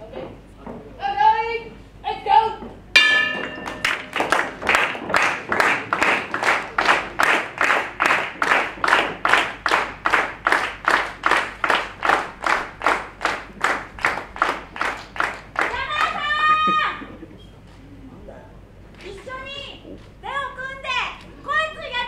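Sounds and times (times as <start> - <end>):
audience clapping in unison: 3.6 - 16.2.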